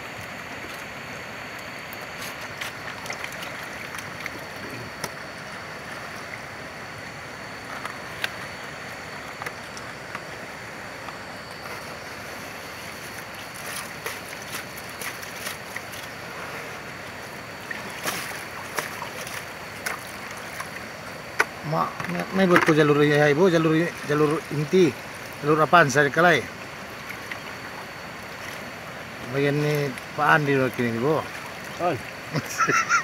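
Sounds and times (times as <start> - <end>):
pans swirled in water: 0.0 - 33.0
river water running: 0.0 - 33.0.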